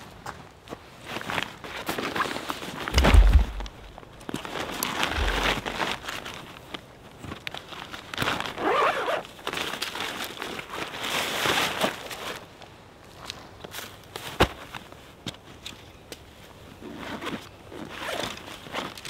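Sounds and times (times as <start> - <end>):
tent gear rustling and crinkling: 0.0 - 19.0
footsteps: 2.9 - 6.2
dull low thumps: 3.0 - 4.1, 5.1 - 5.9.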